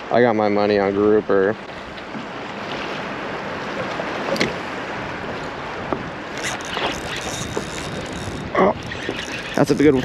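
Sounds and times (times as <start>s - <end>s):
water lapping against boat: 0.0s - 10.0s
wind: 0.0s - 10.0s
fishing reel clicking: 6.4s - 10.0s.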